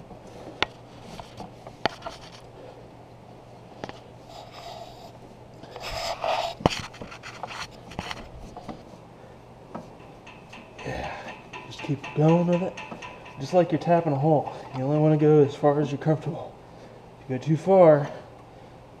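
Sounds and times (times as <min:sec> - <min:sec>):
metal scraping and creaking: 0:09.8 - 0:16.1
sharp tool clicks: 0:10.1 - 0:13.4.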